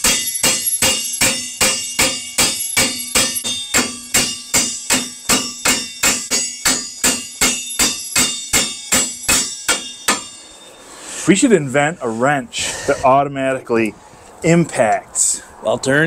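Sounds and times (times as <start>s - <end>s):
hammers striking a wrench: 0.0s - 10.8s.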